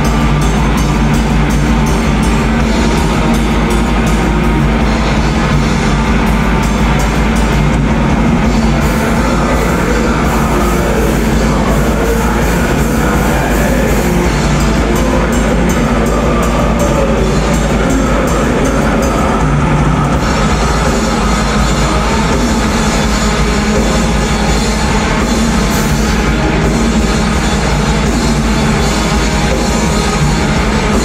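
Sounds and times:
black metal band playing live: 0.0s - 31.0s.

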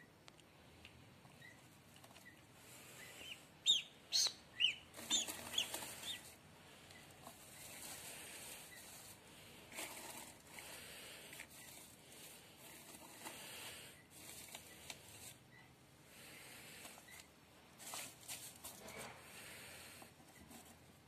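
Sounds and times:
duckling peeping: 1.4s - 7.6s
straw rustling: 2.8s - 15.4s, 16.7s - 19.6s.

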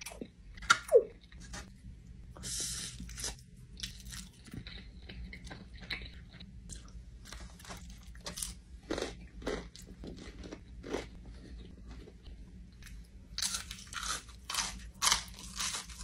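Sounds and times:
person chewing crunchy food: 2.6s - 16.0s.

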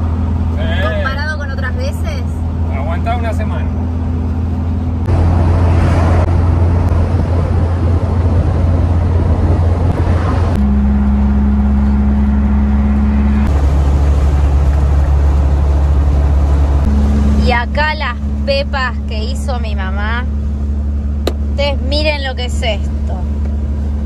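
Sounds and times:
van engine drone: 0.0s - 24.0s
wind and road noise: 0.0s - 24.0s.

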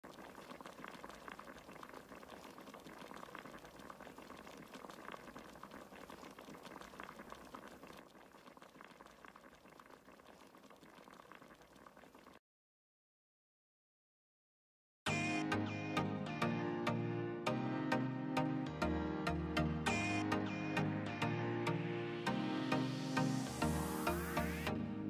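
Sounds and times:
stew bubbling in a pan: 0.0s - 12.4s.

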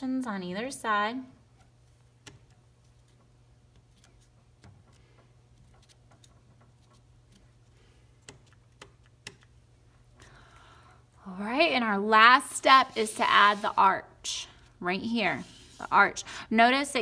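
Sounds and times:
cardboard strip tapping on paper: 2.2s - 7.6s, 8.2s - 9.6s.

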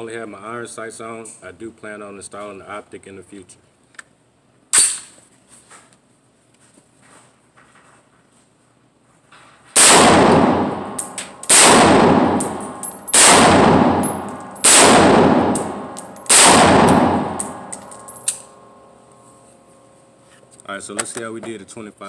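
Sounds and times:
loud gunshots with echo: 9.8s - 17.7s
light metallic clinks: 10.3s - 13.2s, 14.0s - 14.7s, 15.5s - 18.5s.

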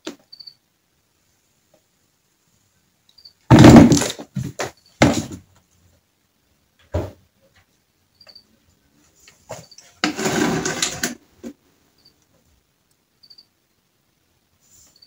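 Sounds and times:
plastic boxes clattering on wooden floor: 3.5s - 5.5s, 9.5s - 11.6s.

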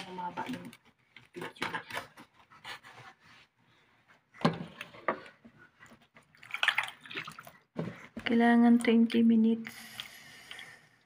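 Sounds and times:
liquid sloshing: 4.4s - 8.1s.

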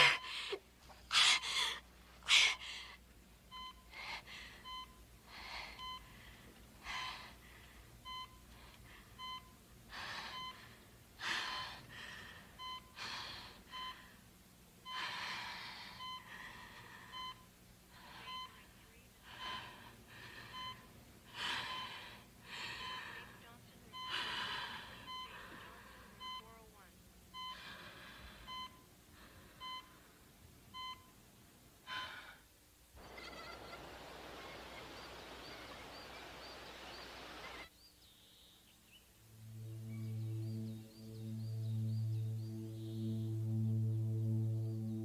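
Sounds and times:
woman sobbing and gasping: 0.0s - 3.0s
medical monitor beeping: 3.5s - 4.0s, 4.6s - 6.6s, 8.0s - 10.7s, 12.6s - 13.0s, 13.6s - 14.0s, 15.9s - 22.0s, 22.6s - 26.7s, 27.3s - 27.7s, 28.4s - 28.9s, 29.6s - 30.0s, 30.7s - 31.2s.

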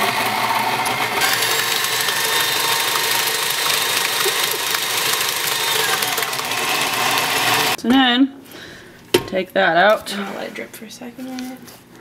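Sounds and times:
stand mixer motor whirring: 0.0s - 7.8s.

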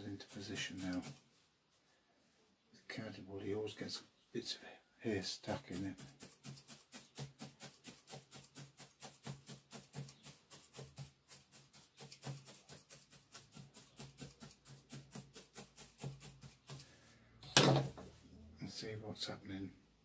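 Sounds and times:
felting needle stabbing wool: 5.8s - 16.8s.

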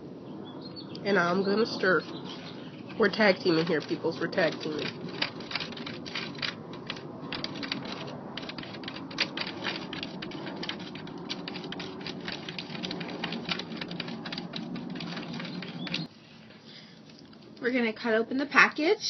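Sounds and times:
plastic utensil stirring in tray: 2.4s - 16.1s.

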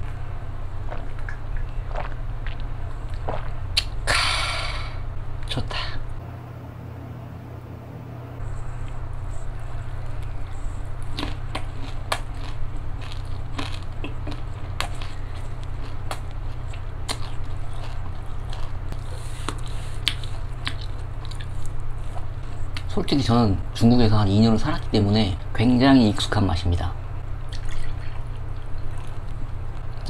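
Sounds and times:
chewing and crunching shrimp: 0.8s - 4.0s, 8.8s - 22.9s, 27.5s - 30.0s.

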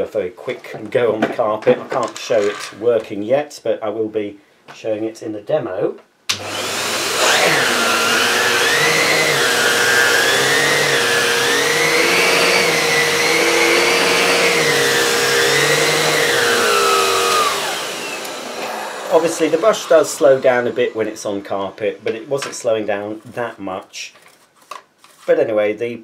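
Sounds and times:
vacuum cleaner motor: 6.3s - 22.5s.

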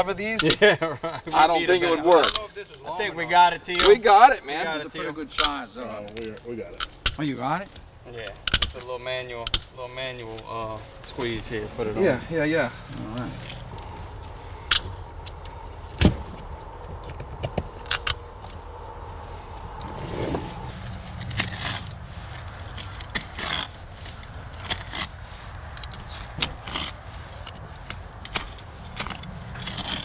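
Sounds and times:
low background rumble: 10.8s - 30.0s.

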